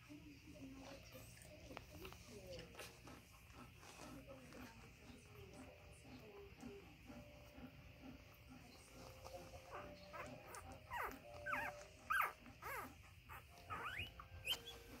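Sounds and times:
puppies squeaking: 0:08.4 - 0:15.0.

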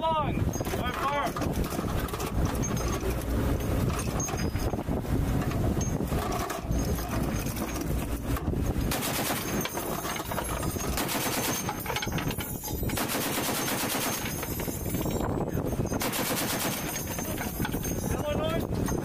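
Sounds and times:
steady low rumble: 0:00.0 - 0:19.0
heavy machine gun firing bursts: 0:08.9 - 0:09.8, 0:10.9 - 0:11.8, 0:13.0 - 0:14.4, 0:16.0 - 0:17.1.

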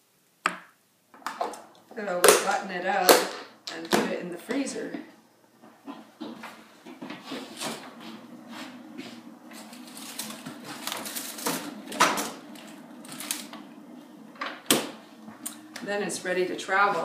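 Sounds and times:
footsteps: 0:05.6 - 0:17.0.

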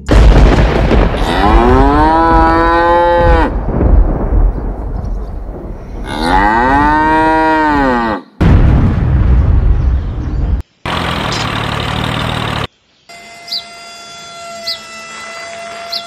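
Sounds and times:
cow mooing: 0:01.2 - 0:03.5, 0:06.1 - 0:08.3.

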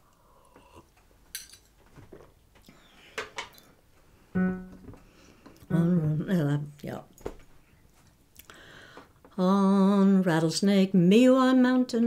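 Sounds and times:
single musical note: 0:04.4 - 0:05.0
person singing folk song: 0:05.7 - 0:06.5.

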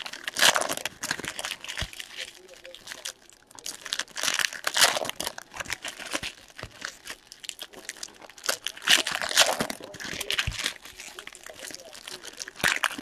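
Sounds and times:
cards rustling: 0:00.0 - 0:13.0
wrappers torn and crumpled: 0:00.0 - 0:13.0.

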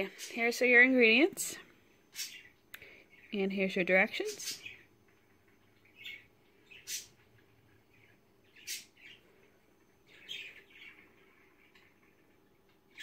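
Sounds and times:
bird chirping and squawking: 0:02.1 - 0:02.6, 0:04.3 - 0:04.9, 0:05.8 - 0:07.3, 0:07.9 - 0:09.4, 0:10.1 - 0:11.8.

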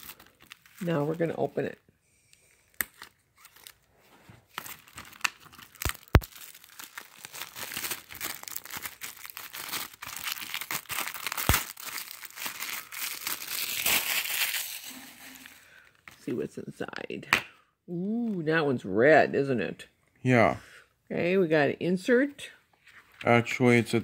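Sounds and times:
plastic shrink-wrap crinkling: 0:00.0 - 0:01.8, 0:02.7 - 0:15.9.

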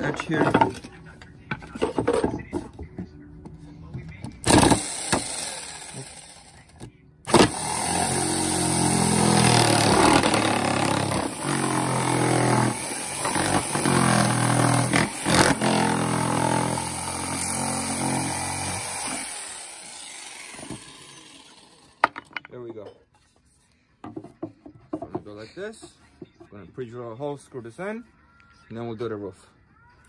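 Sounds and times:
jigsaw cutting plywood: 0:04.4 - 0:06.5, 0:07.3 - 0:22.0.

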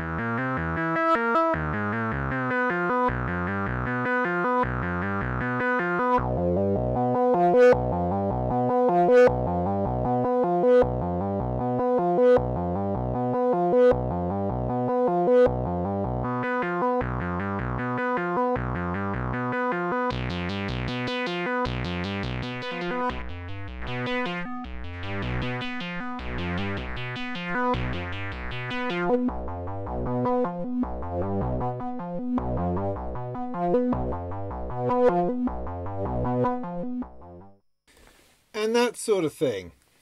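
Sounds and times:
modular synthesizer sequence: 0:19.4 - 0:37.1.

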